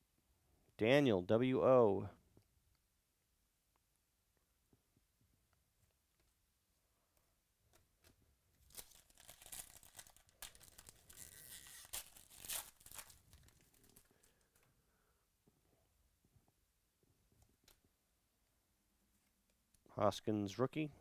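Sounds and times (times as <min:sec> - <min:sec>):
foil wrapper tearing and crinkling: 0:08.6 - 0:14.4.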